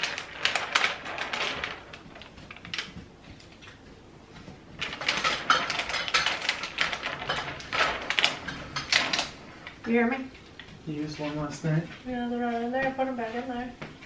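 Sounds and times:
plastic sheet crackling: 0:00.0 - 0:10.1.

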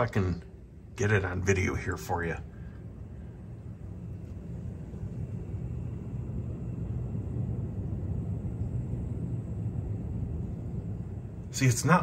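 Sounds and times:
cooling fans droning: 0:00.0 - 0:12.0.

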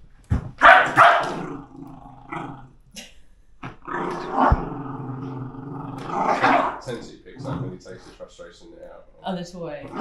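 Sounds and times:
dog growling: 0:00.8 - 0:02.8, 0:03.6 - 0:08.2, 0:09.8 - 0:10.0.

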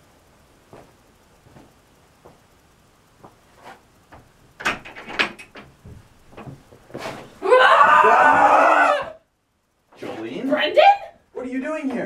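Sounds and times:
faint footsteps: 0:00.3 - 0:04.6, 0:05.6 - 0:09.2
wooden door knocking and rattling: 0:04.1 - 0:06.8.

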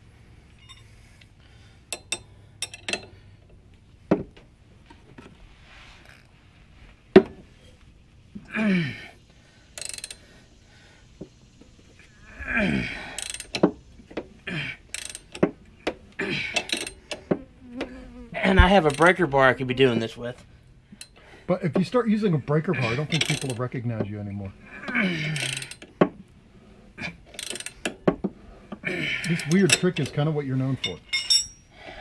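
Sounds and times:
wrench clicking and clanking: 0:01.9 - 0:03.1, 0:09.8 - 0:10.2, 0:13.2 - 0:13.7, 0:14.9 - 0:15.5, 0:16.6 - 0:17.2, 0:23.1 - 0:23.6, 0:25.3 - 0:25.9, 0:27.3 - 0:28.1.

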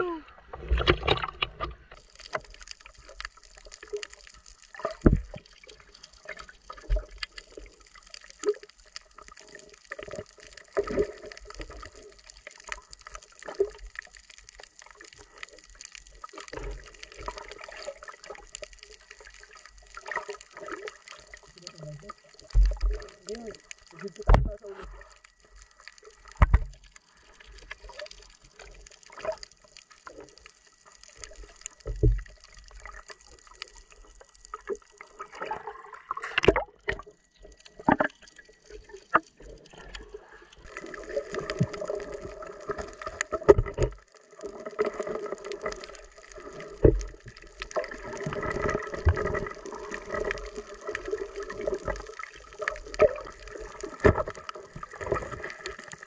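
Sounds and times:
muffled underwater noise: 0:00.0 - 0:02.3, 0:20.6 - 0:28.9.

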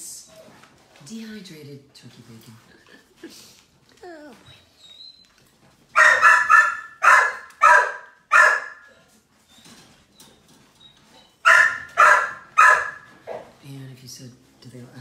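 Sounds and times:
dog barking: 0:05.9 - 0:08.9, 0:11.4 - 0:13.6.

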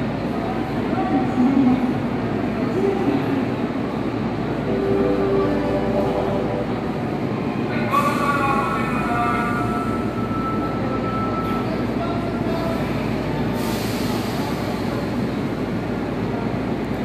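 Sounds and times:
train equipment hum and whoosh: 0:00.0 - 0:17.0
hiss: 0:13.6 - 0:15.0.

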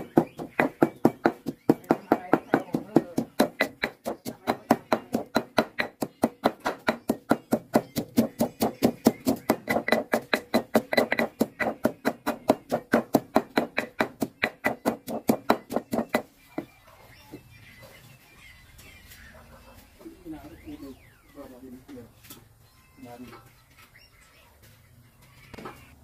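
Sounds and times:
stone pestle pounding in mortar: 0:00.0 - 0:16.3.

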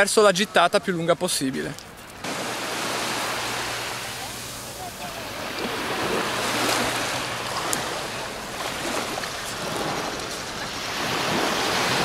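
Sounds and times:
small waves washing onto shore: 0:01.8 - 0:12.0.

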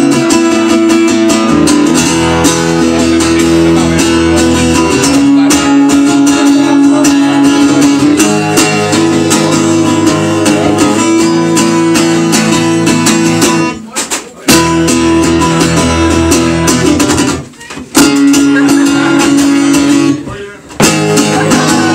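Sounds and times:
acoustic guitar strummed hard: 0:00.0 - 0:21.9.

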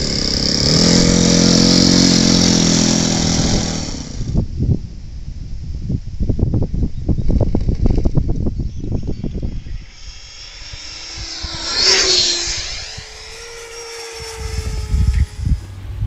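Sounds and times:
model jet whine flying past: 0:00.0 - 0:04.8, 0:07.0 - 0:16.0
wind rumble on microphone: 0:00.0 - 0:16.0.

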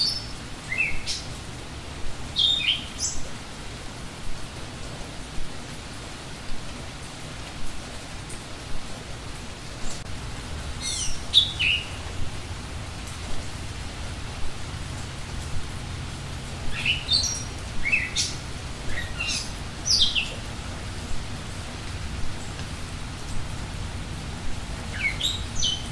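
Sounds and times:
steady background hiss: 0:00.0 - 0:25.9
birds chirping: 0:02.4 - 0:03.3, 0:10.6 - 0:12.4, 0:16.7 - 0:20.6, 0:24.8 - 0:25.9.

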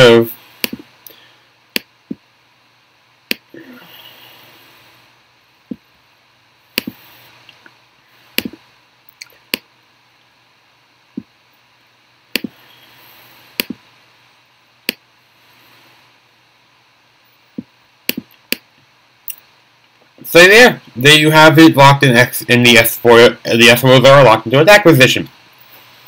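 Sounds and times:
computer mouse clicking: 0:00.6 - 0:00.8, 0:06.8 - 0:07.0, 0:13.6 - 0:13.8.

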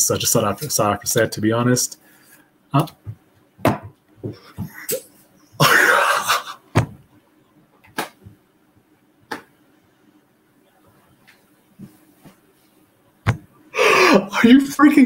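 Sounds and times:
man gasping: 0:13.7 - 0:14.3.

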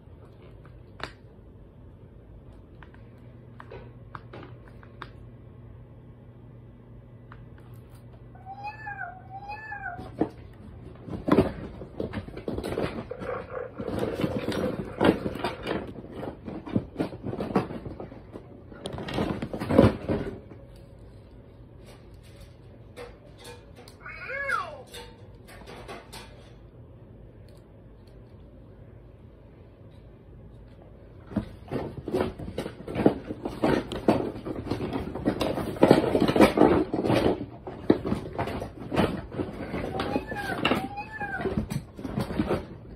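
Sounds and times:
faint steady hum: 0:00.0 - 0:42.9
toy playing rough animal cries: 0:08.4 - 0:10.3, 0:24.0 - 0:24.9, 0:39.8 - 0:41.8.

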